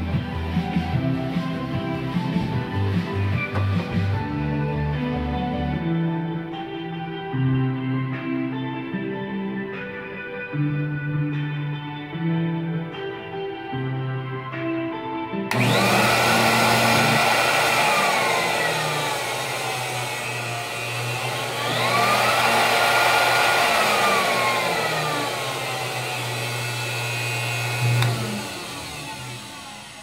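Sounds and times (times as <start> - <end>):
guitar music: 0.4 - 15.6
air blower rushing: 15.5 - 30.0
switch click: 27.9 - 28.2.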